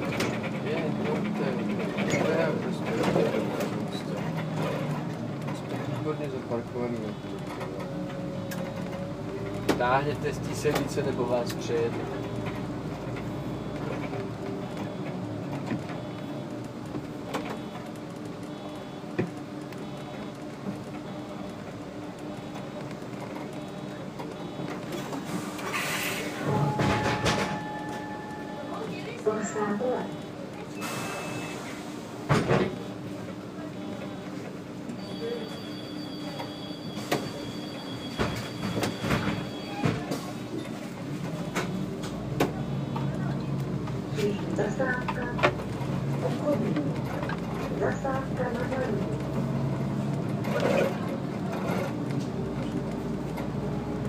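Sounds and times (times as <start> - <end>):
bus engine running: 0.0 - 35.6, 36.4 - 54.0.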